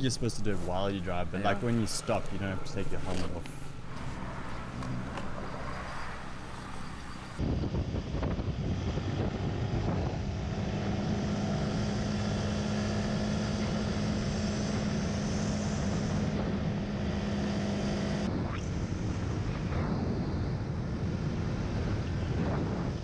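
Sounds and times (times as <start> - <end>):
motorbike engine hum: 0.0 - 18.3
wind rush on microphone: 0.0 - 23.0.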